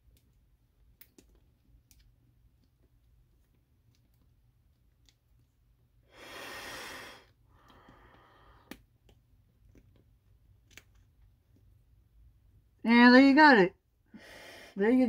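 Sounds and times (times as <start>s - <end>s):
person breathing through gas mask: 6.1s - 8.7s.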